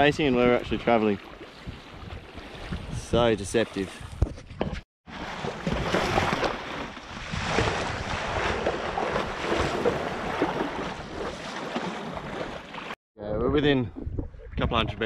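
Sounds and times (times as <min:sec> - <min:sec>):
wind buffeting microphone: 0:00.0 - 0:04.7
water splashing against kayak hull: 0:00.4 - 0:13.0.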